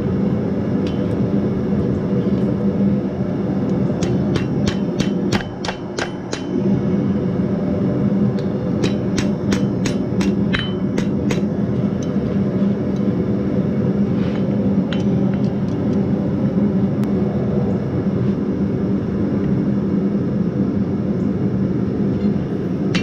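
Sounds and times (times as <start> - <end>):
loud droning hum: 0.0 - 23.0
hammer striking steel on anvil: 4.0 - 6.6, 8.8 - 12.2.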